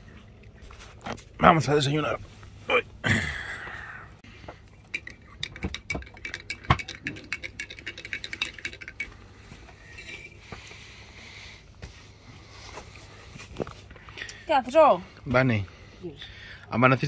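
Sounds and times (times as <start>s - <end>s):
teaspoon clinking in ceramic mug: 4.8s - 9.2s.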